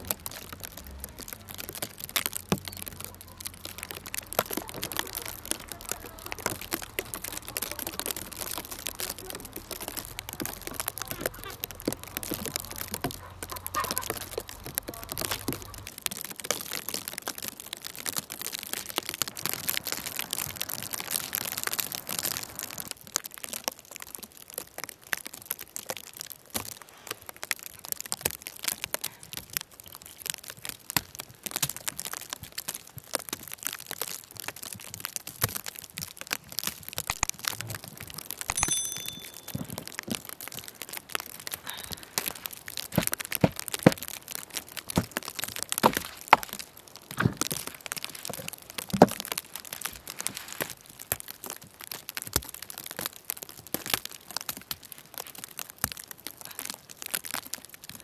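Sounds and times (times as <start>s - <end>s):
dry wood cracking: 0.0s - 58.0s
footsteps crunching snow: 41.9s - 49.2s.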